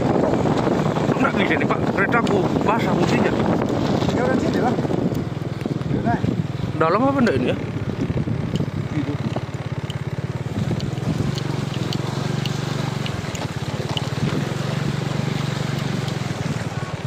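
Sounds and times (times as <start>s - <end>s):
motorcycle engine running: 0.0s - 17.0s
water splashing: 10.4s - 17.0s.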